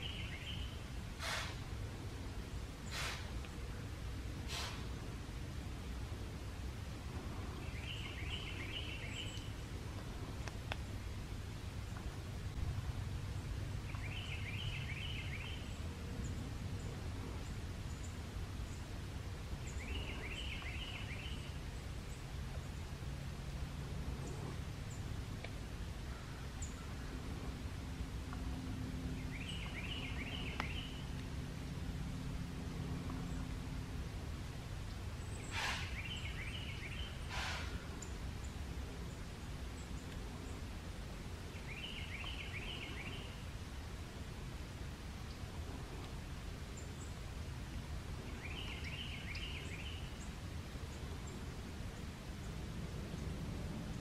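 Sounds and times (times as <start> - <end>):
bird chirping: 0.0 - 1.6, 7.4 - 9.6, 13.4 - 18.9, 19.6 - 22.9, 29.1 - 31.2, 34.9 - 40.7, 41.5 - 43.5, 48.2 - 54.0
low background rumble: 0.0 - 54.0
burst of rushing air: 1.1 - 1.8, 2.8 - 3.4, 4.4 - 5.1, 35.4 - 36.1, 37.2 - 37.9
faint clicks: 9.3 - 10.9, 25.4 - 25.6.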